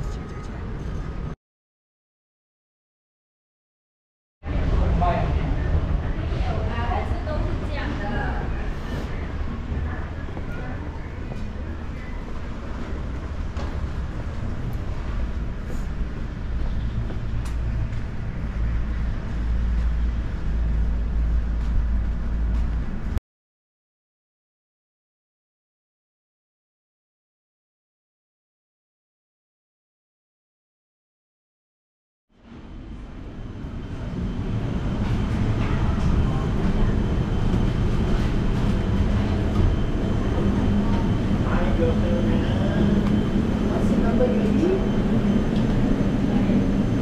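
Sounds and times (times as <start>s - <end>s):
vehicle rumble from inside: 13.0s - 23.2s.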